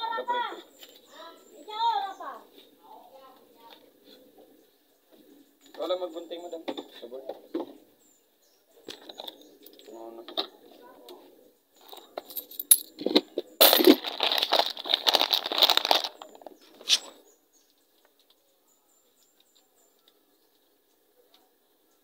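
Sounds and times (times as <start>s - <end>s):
handling rustling and clattering: 11.8s - 17.2s.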